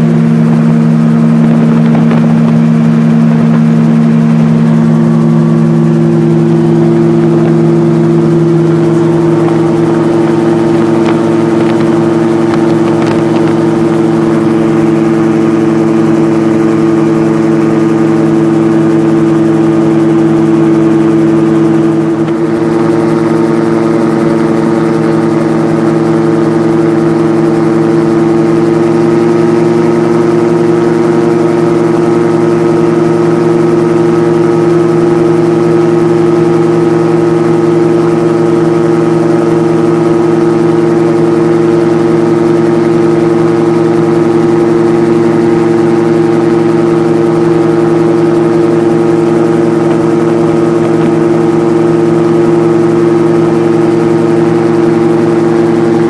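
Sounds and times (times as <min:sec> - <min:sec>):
gyroplane engine and propeller: 0:00.0 - 0:56.0.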